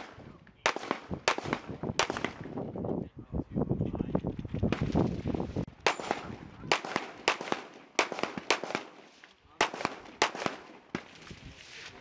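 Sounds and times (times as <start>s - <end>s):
pistol shots: 0.0s - 2.5s, 5.8s - 11.1s.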